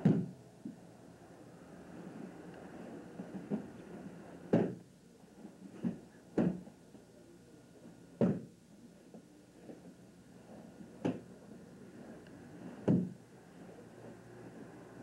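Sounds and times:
body thudding on padded mats: 0:00.0 - 0:00.4, 0:04.5 - 0:04.8, 0:05.8 - 0:06.6, 0:08.2 - 0:08.5, 0:12.8 - 0:13.2.

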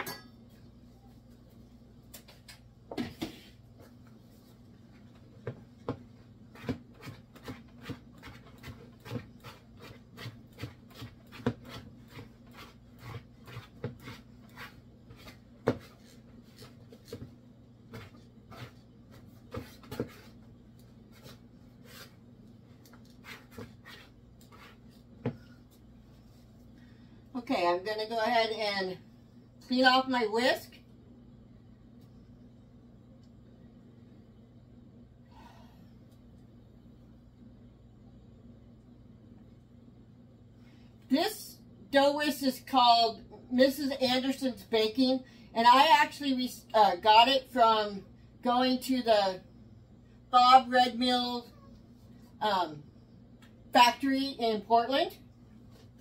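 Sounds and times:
faint low hum: 0:00.0 - 0:56.0
whisk knocking and scraping bowl: 0:06.5 - 0:20.4.

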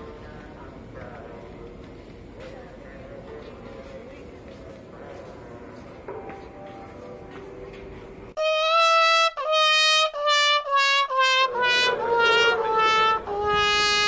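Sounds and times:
trumpet-like public-address jingle: 0:08.4 - 0:14.0.

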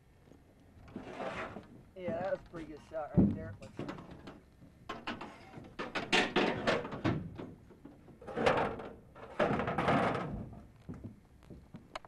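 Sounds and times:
scraping or rustling bursts: 0:00.9 - 0:01.7
knocks and clattering thuds: 0:03.1 - 0:11.8.

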